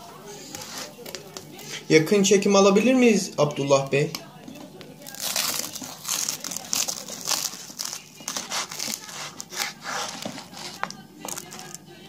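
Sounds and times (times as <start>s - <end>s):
knife crunching through toast: 5.0s - 11.8s.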